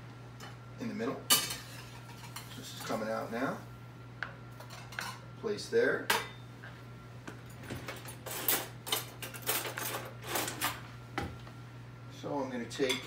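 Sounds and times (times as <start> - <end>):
dishes clinking and scraping: 1.3 - 3.0, 4.6 - 5.3, 7.5 - 10.8.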